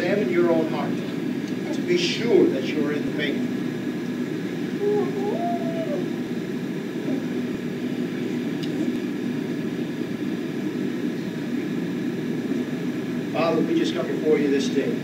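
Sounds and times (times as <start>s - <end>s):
faint hum: 0.0s - 15.0s
low rumbling background noise: 0.0s - 15.0s.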